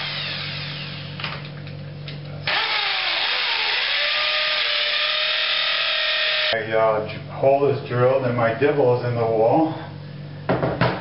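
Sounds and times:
electric drill drilling into wall: 0.0s - 1.3s, 2.5s - 6.5s.

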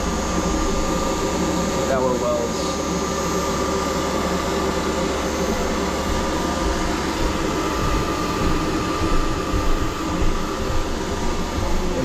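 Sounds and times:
compressor and fan hum: 0.0s - 12.0s
thin steady whine: 0.0s - 12.0s.

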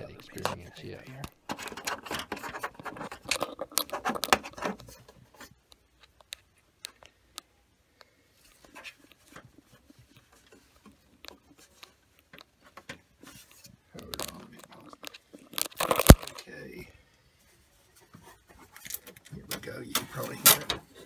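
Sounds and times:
hands rubbing plastic housing: 0.0s - 7.1s, 8.4s - 16.4s.

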